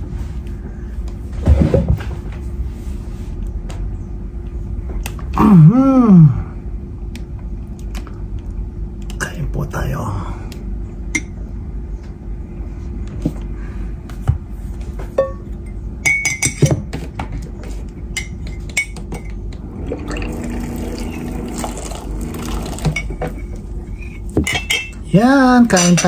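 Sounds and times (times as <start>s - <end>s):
dishes and cutlery clinking: 15.1s - 19.4s, 22.6s - 25.1s, 25.7s - 26.0s.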